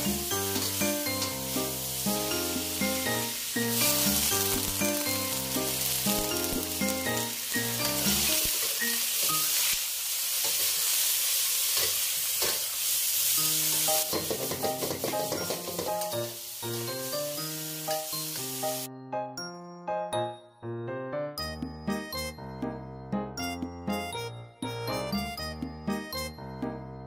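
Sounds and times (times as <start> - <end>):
background music: 0.0 - 9.5, 13.4 - 27.0
food sizzling in a wok: 0.0 - 18.9.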